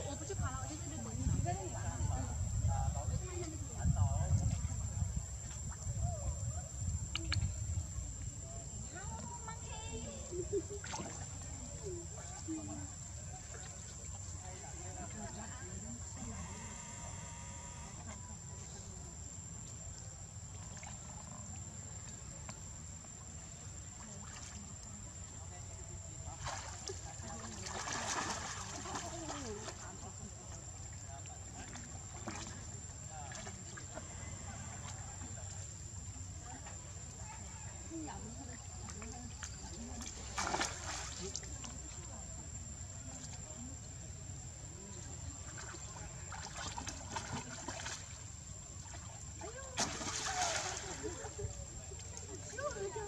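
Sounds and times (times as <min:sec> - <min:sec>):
faint water splashes: 0:00.0 - 0:53.0.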